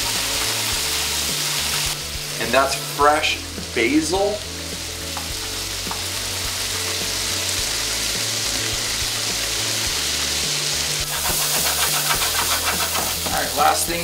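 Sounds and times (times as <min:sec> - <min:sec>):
food sizzling in a frying pan: 0:00.0 - 0:14.0
pan scraping: 0:11.0 - 0:13.7.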